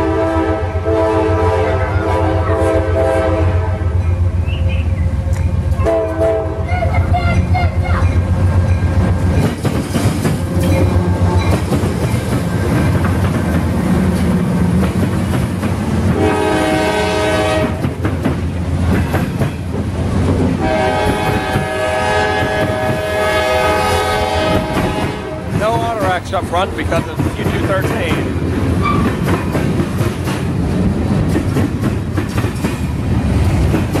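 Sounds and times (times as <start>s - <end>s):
locomotive horn blasts: 0.0s - 4.0s, 5.7s - 6.7s, 16.1s - 17.8s, 20.6s - 25.6s
locomotive engines rumbling: 0.0s - 34.0s
train wheels clattering: 6.9s - 34.0s.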